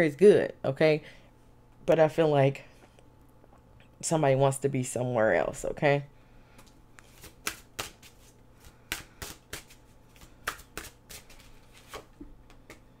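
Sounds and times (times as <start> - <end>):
sharp card snaps and taps: 6.6 - 8.1
cards being shuffled: 6.6 - 12.9.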